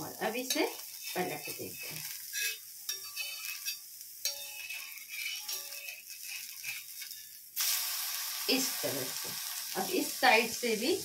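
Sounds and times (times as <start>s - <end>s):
egg sizzling in oil: 0.0s - 11.0s
metal spatula clicks and scrapes: 0.5s - 7.4s.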